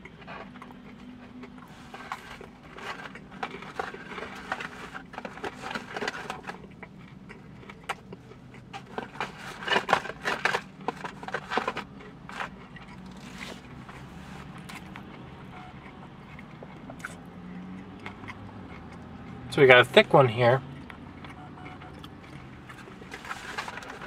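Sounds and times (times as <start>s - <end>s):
food packaging rustling: 0.2s - 15.2s, 22.3s - 24.0s.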